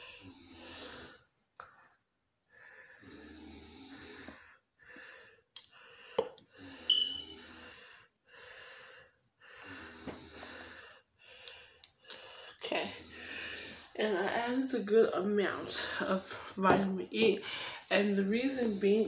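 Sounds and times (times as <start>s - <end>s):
person breathing heavily: 2.5s - 14.0s, 17.4s - 19.0s.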